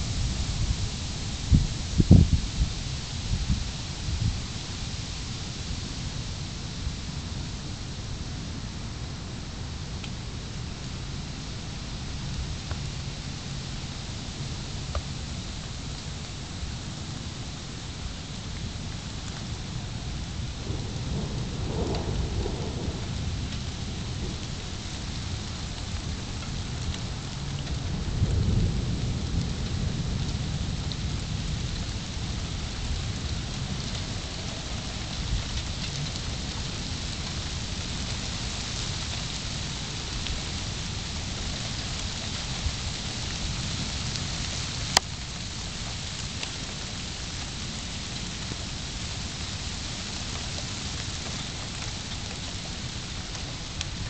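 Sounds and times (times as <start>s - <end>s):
rain falling: 0.0s - 54.0s
thunder rumbling: 20.5s - 38.1s.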